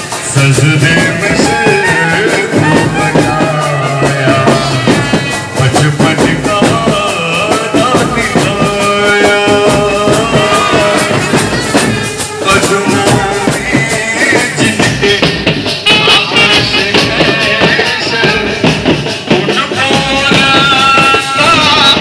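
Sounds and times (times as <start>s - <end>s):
trumpets playing held notes: 0.0s - 14.8s
drums and shaken percussion: 0.0s - 22.0s
man singing through loudspeaker: 0.0s - 22.0s.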